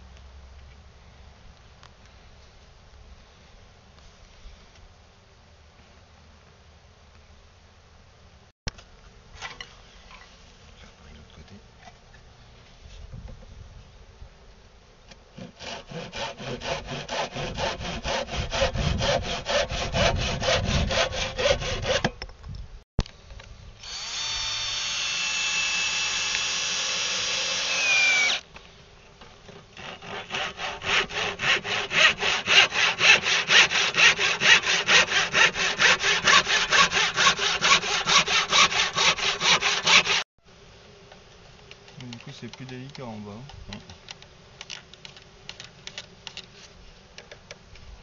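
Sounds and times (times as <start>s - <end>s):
handsaw cutting wooden board: 15.4s - 22.1s, 23.9s - 28.4s, 29.6s - 40.2s
cordless drill whining: 23.8s - 28.4s.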